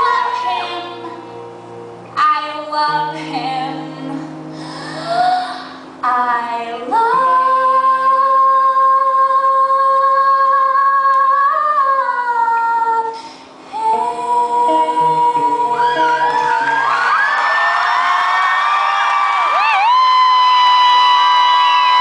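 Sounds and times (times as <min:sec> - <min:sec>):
woman singing high notes: 0:00.0 - 0:01.4, 0:02.2 - 0:16.9
acoustic guitar: 0:00.0 - 0:11.5, 0:12.9 - 0:17.4.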